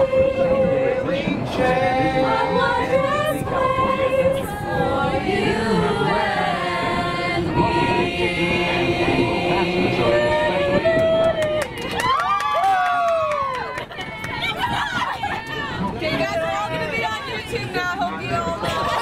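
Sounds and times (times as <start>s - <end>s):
choir singing in harmony: 0.0s - 11.7s.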